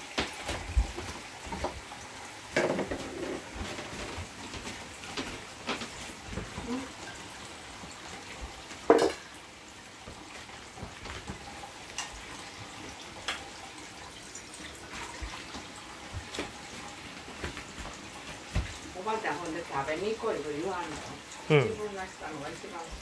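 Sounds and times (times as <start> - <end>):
tableware clicking and knocking: 2.6 - 3.4, 8.9 - 9.2.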